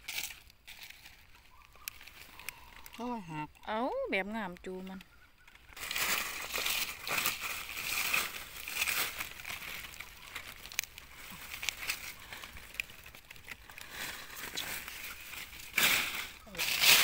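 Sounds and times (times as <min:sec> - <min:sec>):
dry leaves rustling: 0:00.0 - 0:17.0
small snaps: 0:01.6 - 0:03.0.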